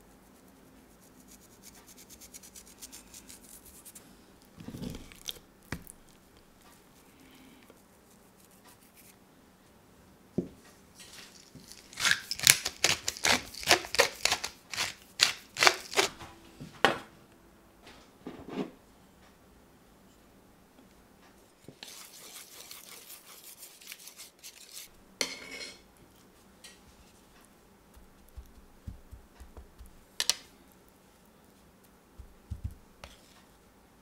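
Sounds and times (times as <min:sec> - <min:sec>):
pepper grinder cracking: 0:11.4 - 0:16.2
faint rubbing: 0:21.4 - 0:24.9.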